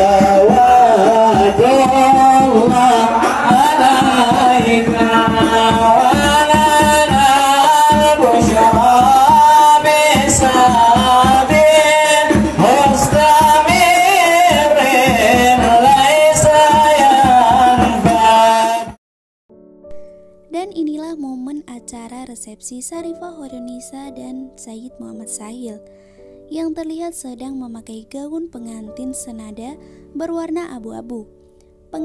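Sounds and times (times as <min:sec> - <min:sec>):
large drum beating: 0:00.0 - 0:18.8
frame drums: 0:00.0 - 0:19.0
man singing into a microphone: 0:00.0 - 0:19.0.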